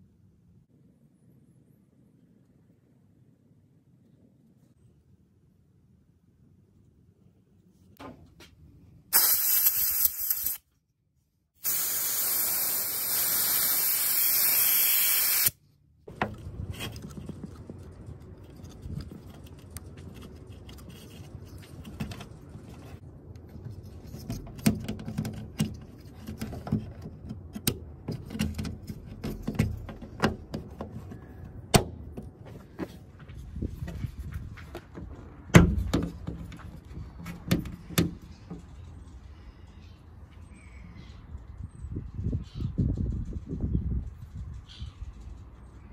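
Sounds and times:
pressurised jet hissing: 9.2 - 10.6, 11.6 - 15.6
plastic parts clicking and scraping: 16.2 - 31.6.

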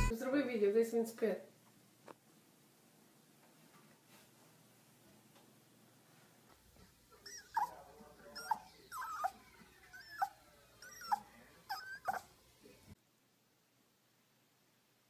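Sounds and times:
small dog whining: 7.1 - 12.4.

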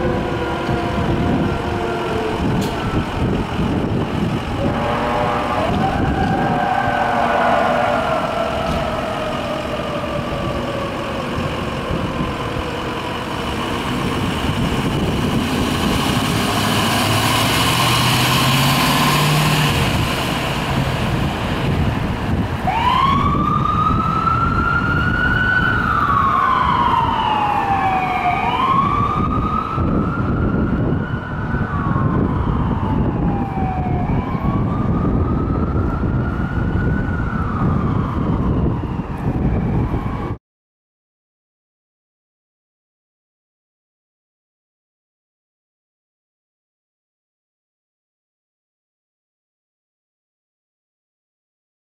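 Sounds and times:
ambulance engine pulling off: 0.0 - 40.4
ambulance siren wailing: 0.0 - 40.4
city traffic noise: 0.0 - 40.4.

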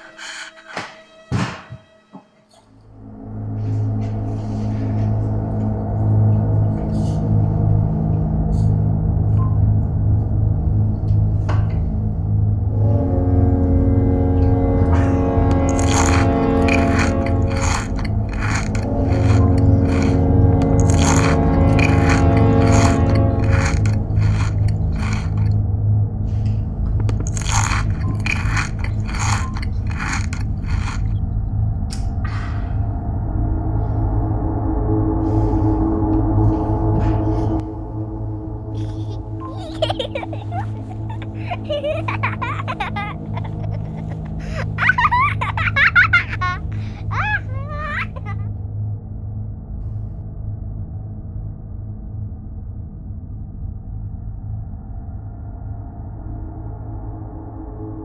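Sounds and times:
low droning background music: 0.0 - 58.0
loud crunching chewing: 15.6 - 25.6, 27.1 - 31.2.

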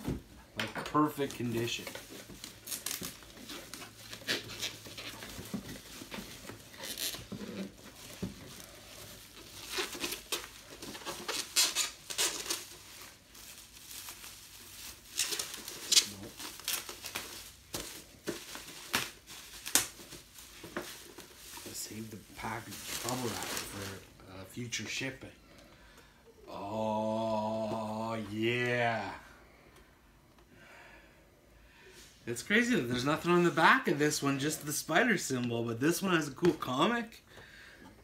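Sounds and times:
bubble wrap crinkling: 0.9 - 25.2.

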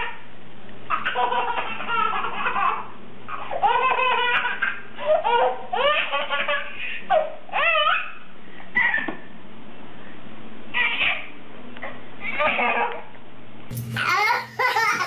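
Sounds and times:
baby laughing: 0.9 - 8.2, 8.8 - 9.2, 10.7 - 11.3, 12.2 - 13.1, 14.0 - 15.0.

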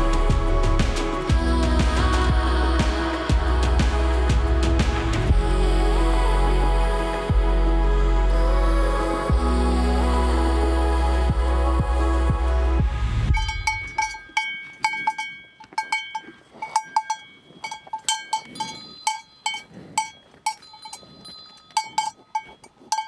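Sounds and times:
background music: 0.0 - 14.1
cowbells clanking: 13.3 - 23.0.

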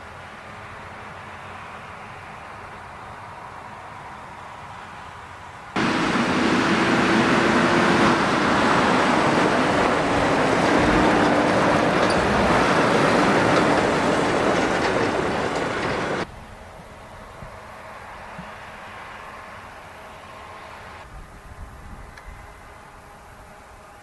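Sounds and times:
rumble of tyres and trailer: 0.0 - 24.0
diesel truck engine running: 5.8 - 16.3.

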